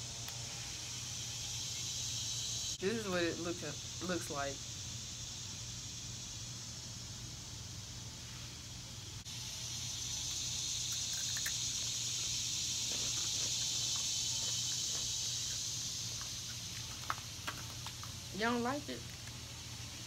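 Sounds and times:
insect chorus droning: 0:00.0 - 0:20.0
crisp snack being chewed: 0:10.9 - 0:18.2, 0:19.0 - 0:19.4.

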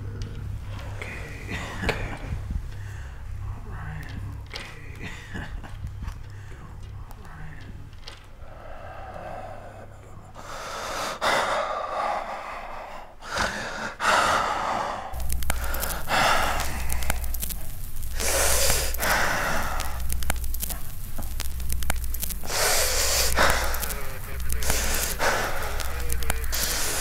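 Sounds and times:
man breathing heavily: 0:00.0 - 0:07.1, 0:07.8 - 0:21.2, 0:22.4 - 0:27.0
loud rumbling with crackling: 0:00.0 - 0:08.3, 0:15.2 - 0:27.0.

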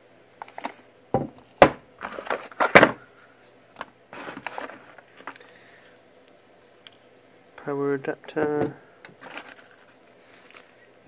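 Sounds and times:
packaging knocking on wooden desk: 0:01.1 - 0:01.8
plastic bag rustling: 0:04.1 - 0:05.4, 0:09.2 - 0:11.0.

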